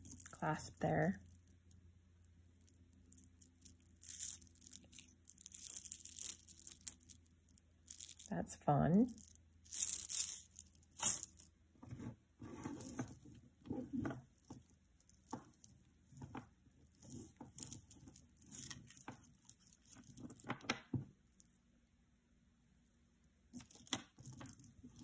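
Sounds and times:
metal chains and beads clinking: 0.0s - 1.8s, 2.6s - 8.4s, 9.1s - 11.5s, 16.9s - 20.5s.

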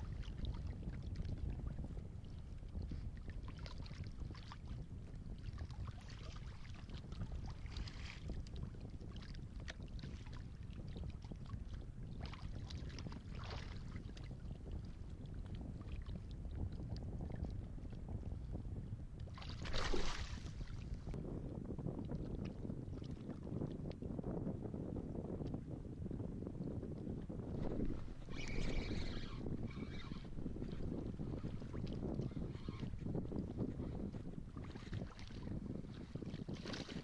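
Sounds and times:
water lapping against kayak: 0.0s - 24.2s, 25.4s - 37.0s
wind rumbling on microphone: 0.0s - 37.0s
small splashes by hull: 19.4s - 20.9s.

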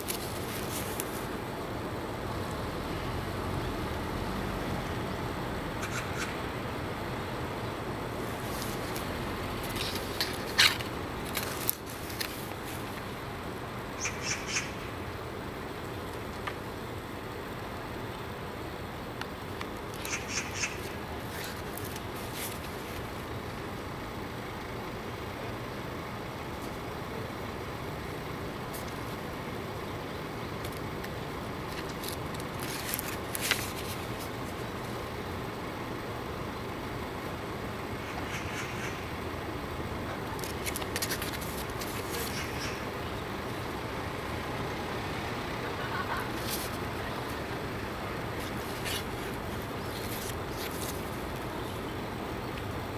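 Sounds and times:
paper pages rustling: 0.0s - 1.3s, 8.2s - 13.1s, 21.2s - 23.1s, 31.7s - 34.6s, 40.3s - 42.8s, 46.3s - 47.4s, 48.3s - 51.4s
soft brushing strokes: 0.0s - 1.5s, 8.2s - 13.1s, 20.8s - 23.2s, 45.7s - 51.8s
steady background hiss: 0.0s - 52.9s
traffic hum: 0.0s - 52.9s.

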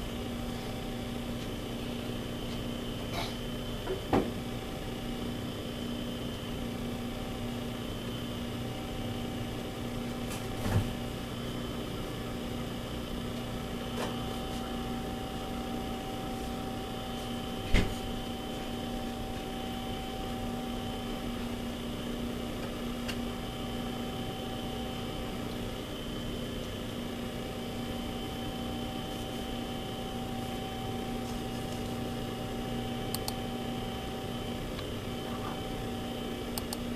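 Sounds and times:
electrical hum: 0.0s - 36.9s.

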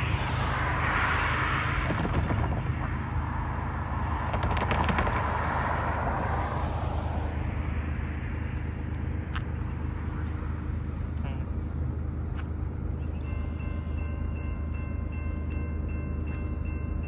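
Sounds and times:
cars driving past: 0.0s - 17.0s
steady low rumble: 0.0s - 17.0s.

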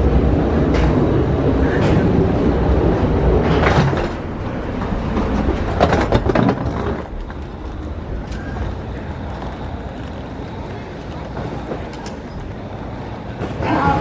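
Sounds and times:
clattering knocks: 4.8s - 7.4s.

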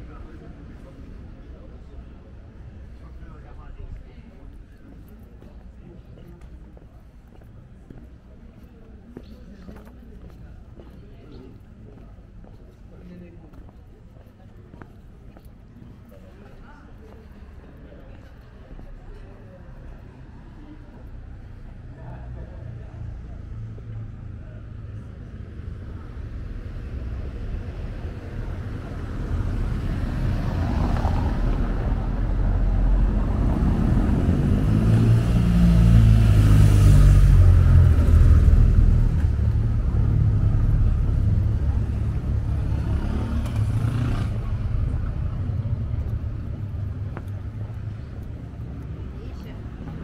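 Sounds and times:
vehicle engine passing by: 28.5s - 50.0s.

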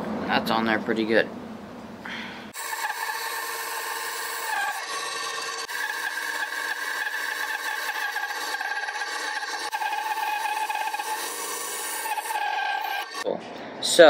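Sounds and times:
bandsaw cutting wood: 2.5s - 13.3s.

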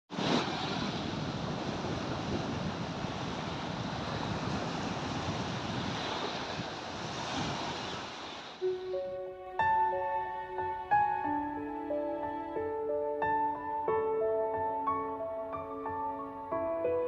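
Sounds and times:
small waves washing onto sand: 0.1s - 8.8s.

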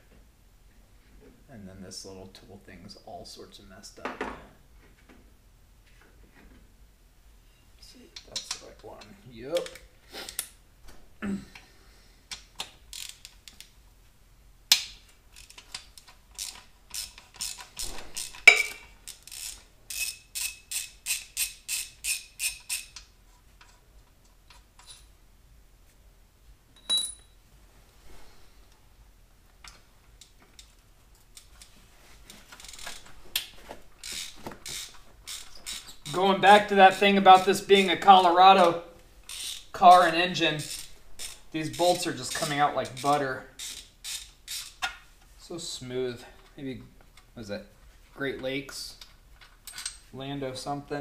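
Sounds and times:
ratchet wrench clicking: 12.3s - 13.6s, 16.4s - 18.4s, 19.0s - 23.1s, 34.0s - 35.9s, 39.2s - 39.7s, 40.6s - 41.4s, 42.4s - 44.8s.

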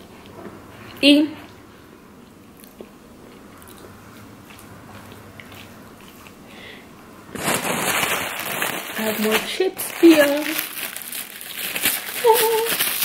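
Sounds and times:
quiet chewing: 2.2s - 6.8s
loud crinkling: 7.3s - 13.0s.

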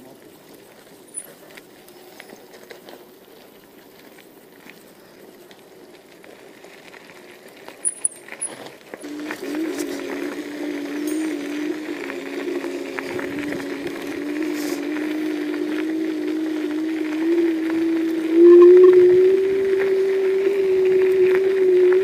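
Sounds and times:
scooter tyres rolling over gravel: 0.0s - 22.0s
electric motor whine: 9.0s - 22.0s.

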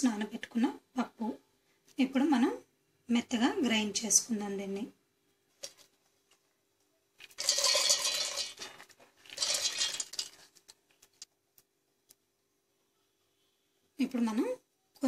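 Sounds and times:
wet grains poured into metal jar: 7.2s - 11.2s.

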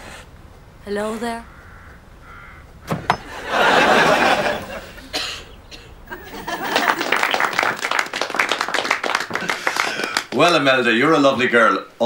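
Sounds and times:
audience laughing: 3.2s - 5.1s, 6.1s - 10.3s
crowd clapping: 6.1s - 11.0s.

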